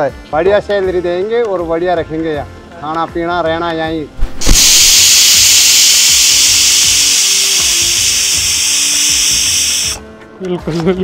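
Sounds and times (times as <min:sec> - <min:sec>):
loud steady hissing: 0:04.2 - 0:10.0
faint music: 0:08.1 - 0:11.0.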